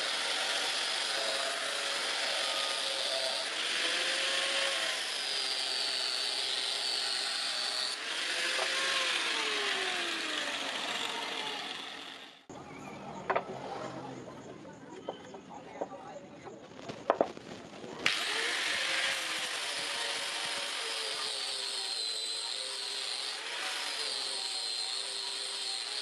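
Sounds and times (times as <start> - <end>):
angle grinder grinding steel: 0.0 - 12.5, 18.0 - 26.0.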